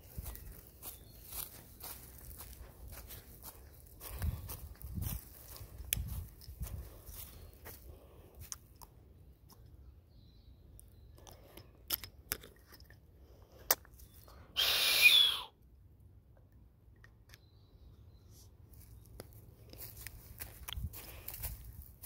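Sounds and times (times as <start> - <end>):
dry leaves crunching: 0.0 - 8.5, 19.6 - 22.0.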